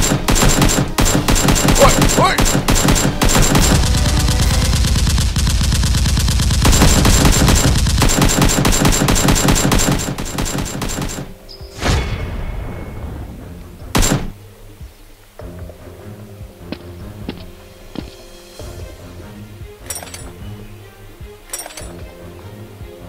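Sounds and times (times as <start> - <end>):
rapid machine-gun fire: 0.0 - 11.3, 14.0 - 14.3
sharp bangs: 0.0 - 14.4.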